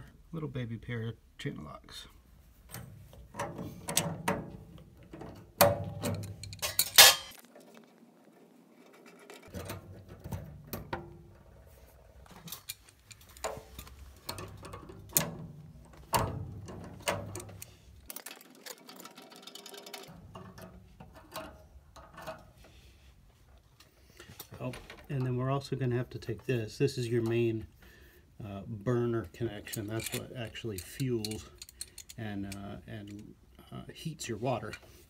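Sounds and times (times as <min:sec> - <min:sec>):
metallic clicks and clinks of pliers: 0:06.0 - 0:07.4, 0:29.6 - 0:33.3.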